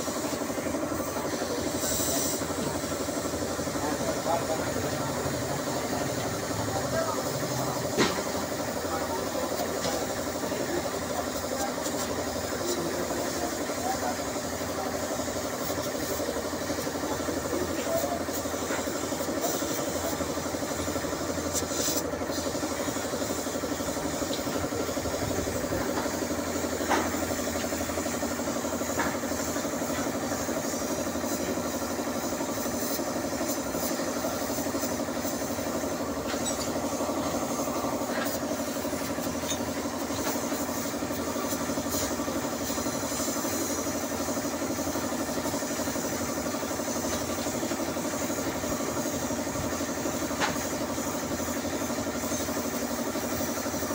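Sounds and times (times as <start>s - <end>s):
spray gun hissing: 0.0s - 4.7s, 8.0s - 53.9s
air compressor pulsing: 0.0s - 53.9s.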